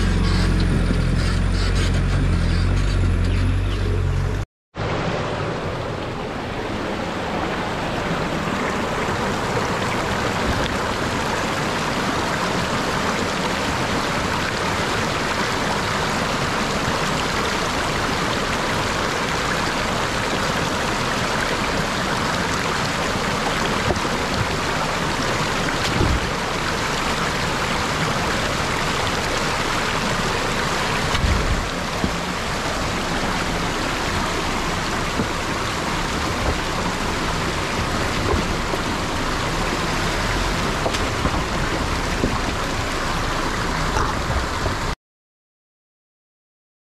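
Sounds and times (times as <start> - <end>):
stream rushing over stones: 4.8 - 45.0.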